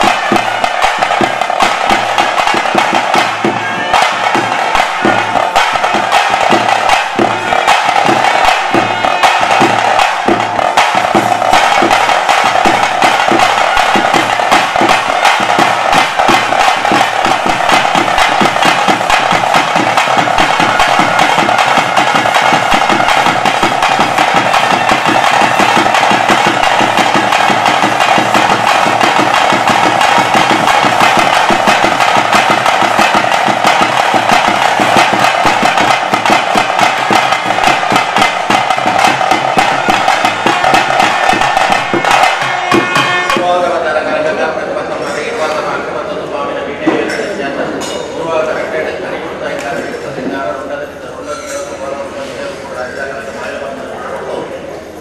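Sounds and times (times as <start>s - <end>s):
fast dense drumming: 0.0s - 44.2s.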